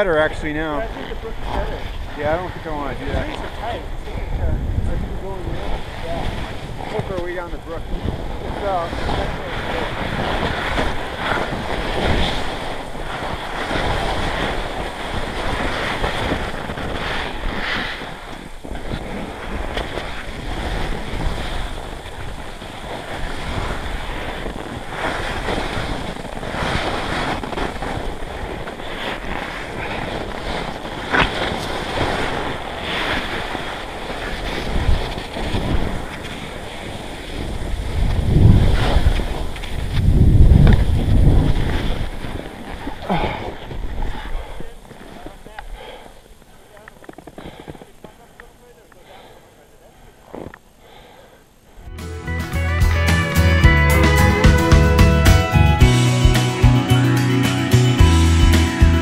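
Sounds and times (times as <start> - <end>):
wind buffeting microphone: 0.0 - 44.6
skis sliding through powder snow: 0.0 - 51.1.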